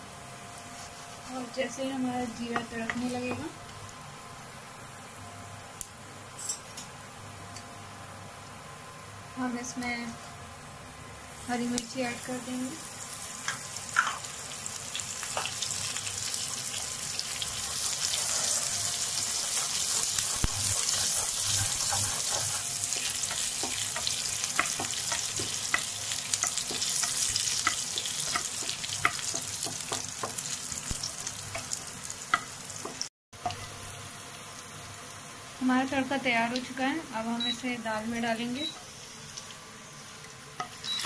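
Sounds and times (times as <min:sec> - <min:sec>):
spices sizzling in oil: 0:00.0 - 0:04.8, 0:11.1 - 0:41.0
wooden spatula stirring: 0:19.3 - 0:30.5.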